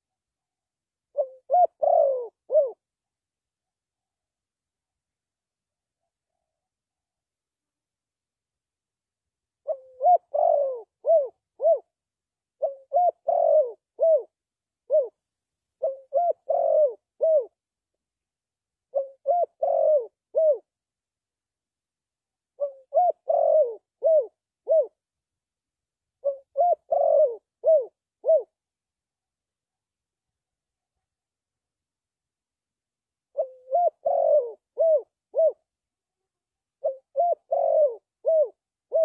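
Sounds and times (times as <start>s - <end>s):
dove cooing: 1.1s - 2.8s, 9.6s - 11.9s, 12.6s - 15.2s, 15.8s - 17.6s, 18.9s - 20.7s, 22.6s - 25.0s, 26.2s - 28.6s, 33.3s - 35.6s, 36.8s - 39.0s.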